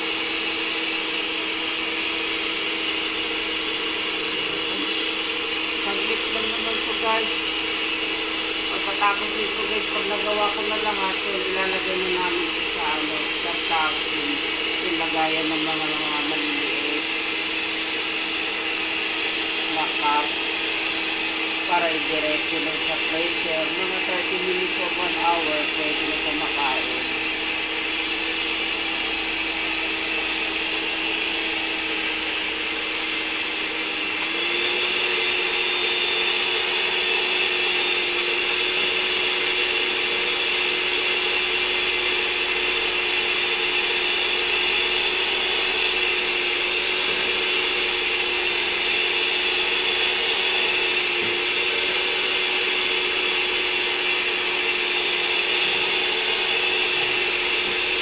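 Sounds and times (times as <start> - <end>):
electric hand mixer whirring: 0.0 - 58.0.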